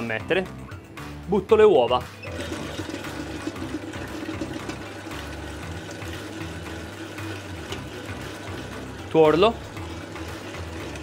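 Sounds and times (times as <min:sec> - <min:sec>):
stand mixer whipping: 0:02.3 - 0:11.0.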